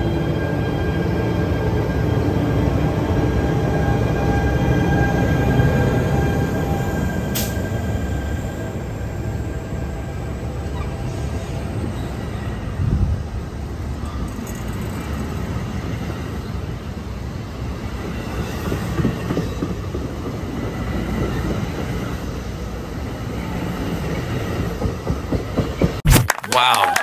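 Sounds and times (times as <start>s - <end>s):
train wheels rumbling on rails: 0.0s - 26.0s
train wheel clacks: 24.7s - 26.0s.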